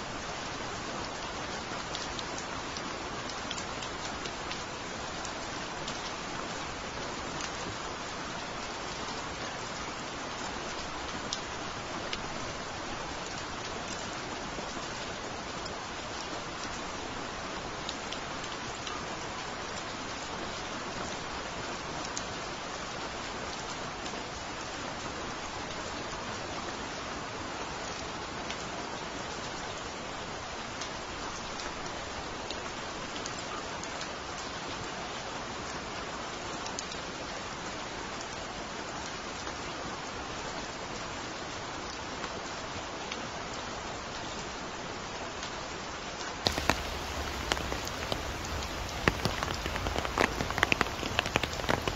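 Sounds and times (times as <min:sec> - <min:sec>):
steady rain falling: 0:00.0 - 0:51.9
raindrop ticks: 0:46.4 - 0:51.9.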